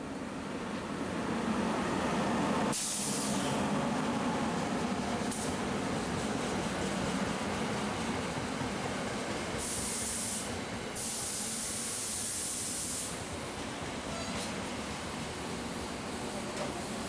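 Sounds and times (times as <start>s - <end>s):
train noise: 0.0s - 17.0s
high hiss of air: 2.7s - 3.5s, 9.5s - 13.3s.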